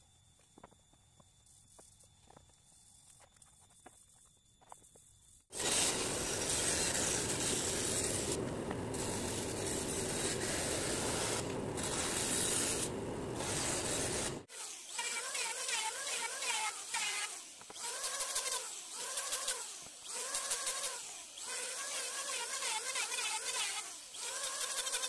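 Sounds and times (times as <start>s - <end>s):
band saw cutting wood: 5.5s - 25.0s
electric hand planer: 5.5s - 25.0s.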